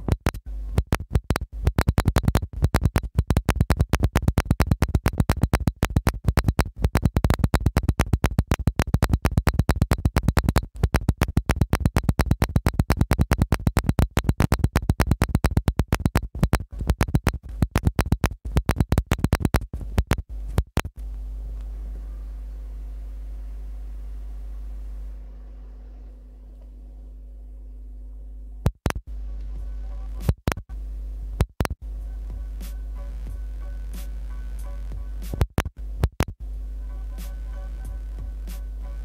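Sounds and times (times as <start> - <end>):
stuttering electronic clicks music: 0.0 - 21.2, 28.6 - 30.7, 31.4 - 39.0.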